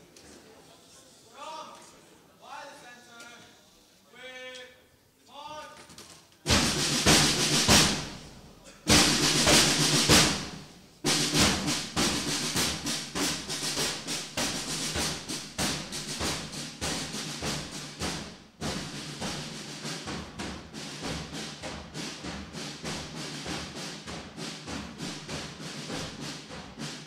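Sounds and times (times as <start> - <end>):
snare drum rolls: 6.4 - 27.0
marching snare drum beat: 6.5 - 27.0.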